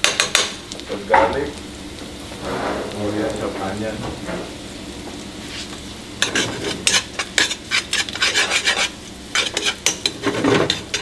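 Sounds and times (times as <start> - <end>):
potatoes sizzling in frying pan: 0.0 - 11.0
scraping against pan: 2.3 - 3.0, 5.4 - 11.0.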